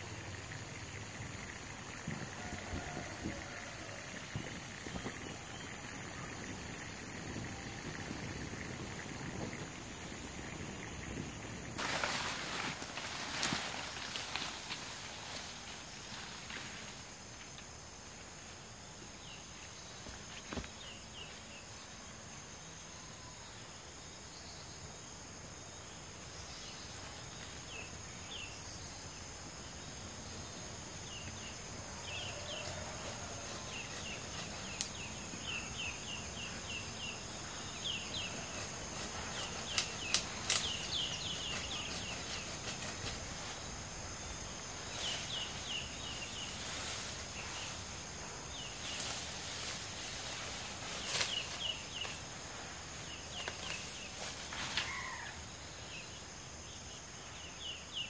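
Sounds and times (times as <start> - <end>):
insect drone: 0.0 - 58.0
twigs snapping in undergrowth: 39.7 - 40.9, 53.4 - 54.0.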